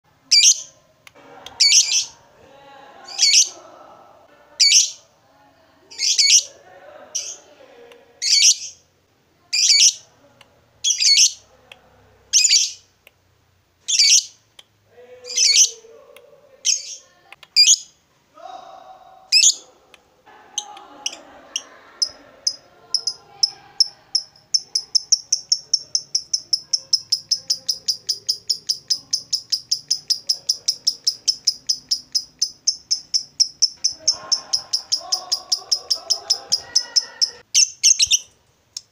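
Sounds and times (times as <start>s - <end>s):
bird chatter: 21.1s - 38.3s.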